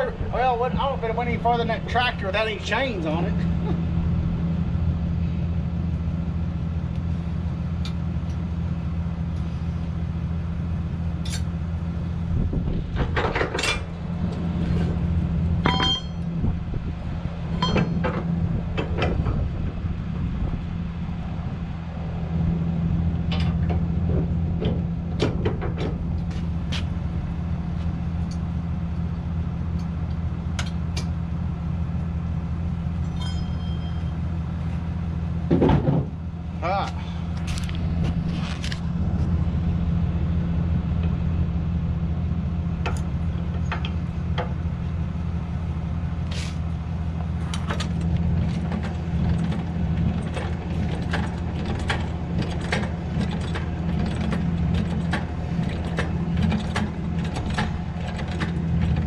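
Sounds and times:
engine idling hum: 0.0 - 59.0
metal clanks and rattles of hitch: 11.1 - 11.6, 12.3 - 20.4, 23.2 - 28.6, 32.7 - 39.4, 46.2 - 59.0.

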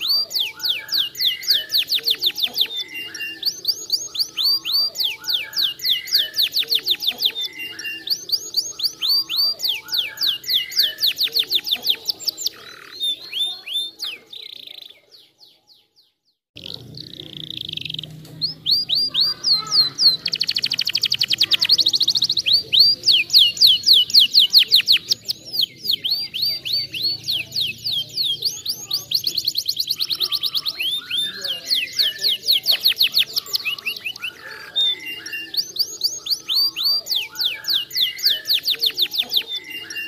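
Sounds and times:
canary singing: 0.0 - 40.0.

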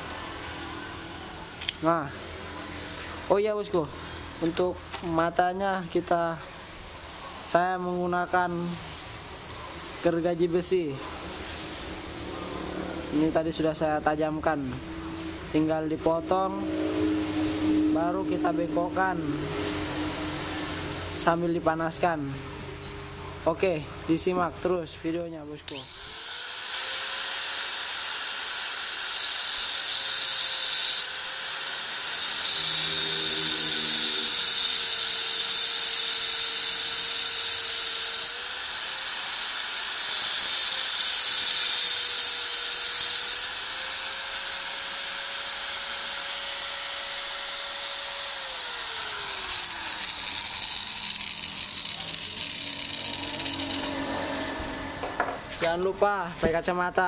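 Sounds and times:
angle grinder motor whine: 25.7 - 55.6
grinder disc grinding metal: 25.7 - 55.7.

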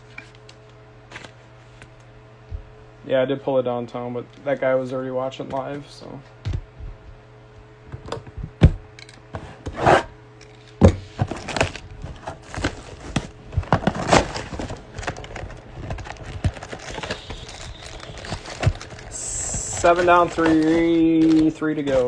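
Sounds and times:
plastic wrap crinkling and tearing: 11.3 - 22.0.

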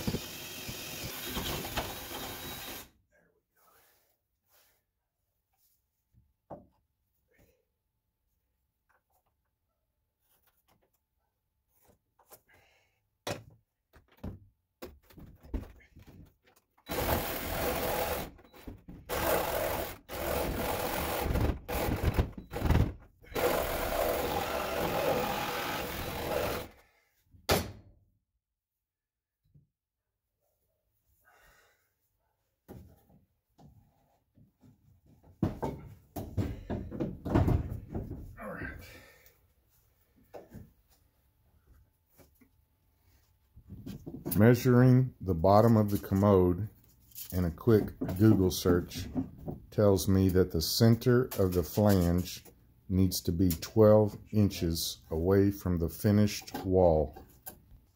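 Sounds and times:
tools and lumber knocking: 0.0 - 2.8, 6.5 - 6.8, 13.2 - 26.7, 32.7 - 38.3, 47.7 - 49.8.

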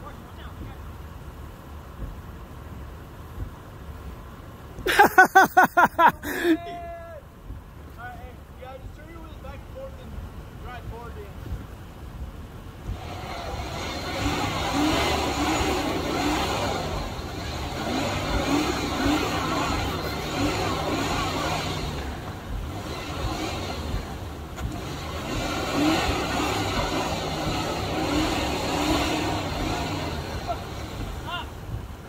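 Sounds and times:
car engine revving: 12.5 - 32.0.

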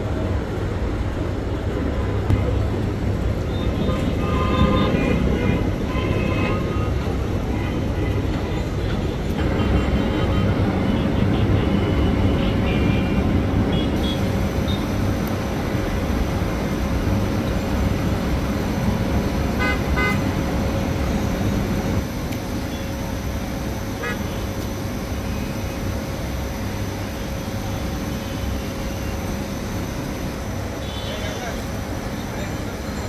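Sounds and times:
traffic rumble: 0.0 - 33.0
car horn toots: 3.8 - 6.6.

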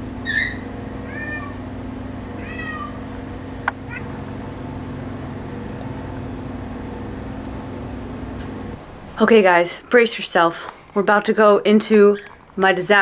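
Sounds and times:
cat meowing: 0.5 - 1.6, 2.4 - 3.0, 3.9 - 4.2.

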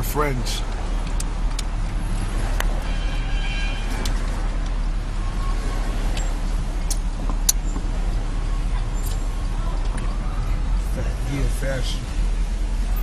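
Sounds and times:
car engine rumble from cabin: 0.0 - 13.0.

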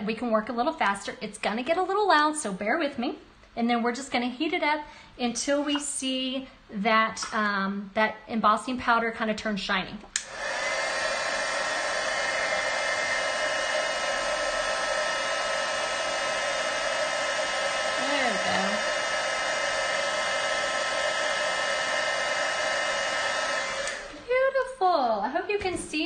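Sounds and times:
heat tool fan rushing: 10.2 - 24.4.

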